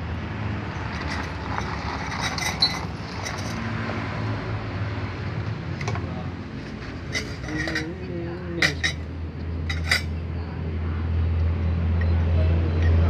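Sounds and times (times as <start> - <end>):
tool scraping inside wheel hub: 0.8 - 4.0, 5.7 - 8.1, 9.7 - 10.1.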